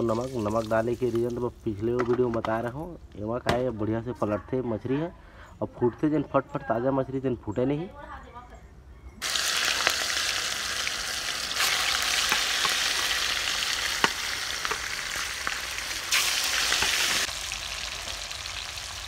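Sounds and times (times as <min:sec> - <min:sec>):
fish frying in hot oil: 0:09.2 - 0:19.0
oil popping: 0:09.2 - 0:19.0.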